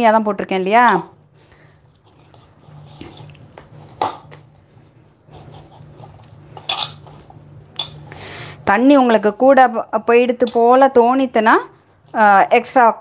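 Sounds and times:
low steady hum: 0.0s - 13.0s
dough squishing against a plate: 1.8s - 11.0s.

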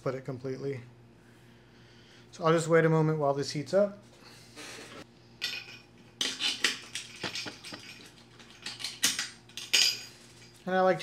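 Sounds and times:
metal tools clinking and rattling: 5.4s - 10.7s.

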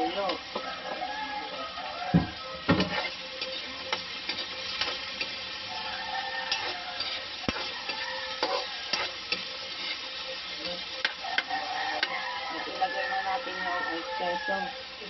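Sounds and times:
vegetables sizzling in hot oil: 0.0s - 15.0s
metal spoon scraping a pan: 2.8s - 14.4s.

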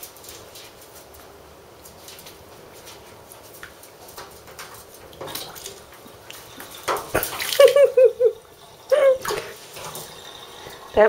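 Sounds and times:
ferret splashing in bathwater: 3.6s - 11.0s.

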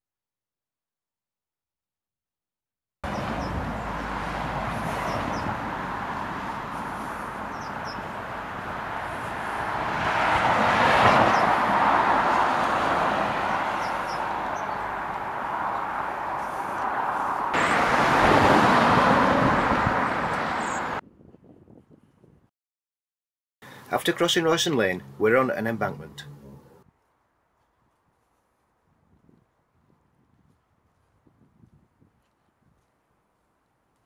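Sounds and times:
car passing by: 3.0s - 21.0s.

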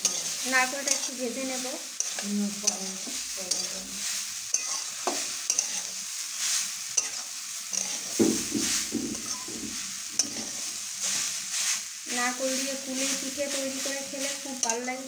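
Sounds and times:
metal spatula scraping pan: 0.0s - 1.2s, 2.0s - 11.8s.

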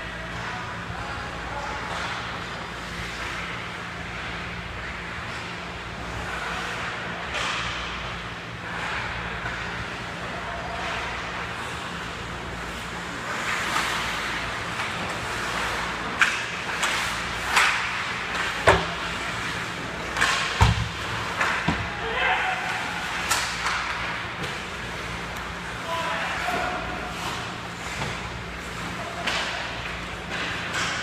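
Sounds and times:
skates scraping ice: 8.6s - 31.0s.

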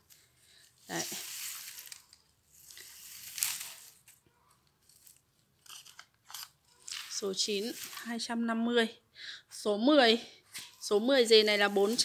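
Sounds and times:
leaves and roots rustling: 0.0s - 4.2s, 6.9s - 8.3s, 10.7s - 12.0s.

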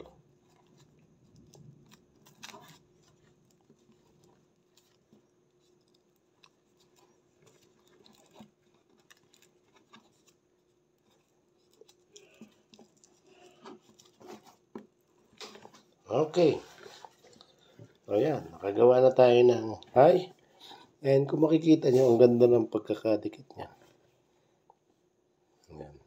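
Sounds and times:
rope rustling and scraping: 0.0s - 22.5s.

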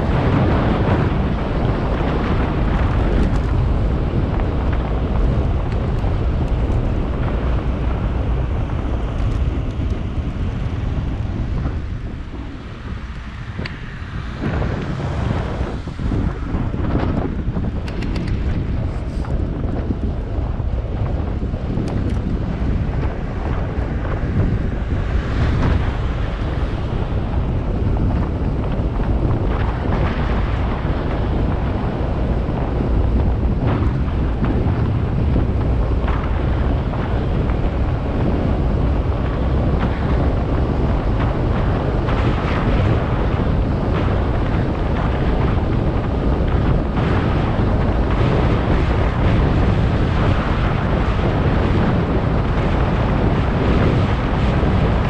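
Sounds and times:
wind against microphone: 0.0s - 55.0s.

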